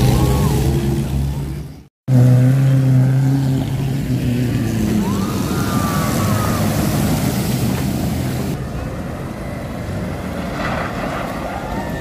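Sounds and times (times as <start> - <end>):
splashing water: 3.8 - 8.6.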